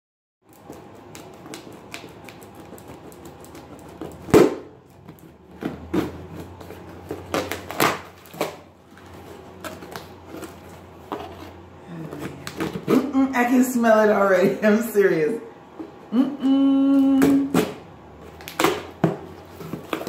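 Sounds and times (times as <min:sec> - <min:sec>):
cardboard scraping and knocking: 0:03.9 - 0:11.6.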